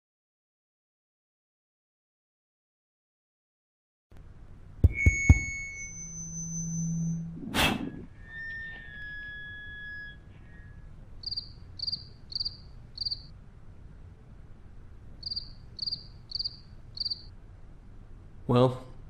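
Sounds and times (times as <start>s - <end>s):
ringing tone: 4.8s - 10.8s
cricket chirps: 4.9s - 7.4s, 9.6s - 13.4s, 15.2s - 17.4s.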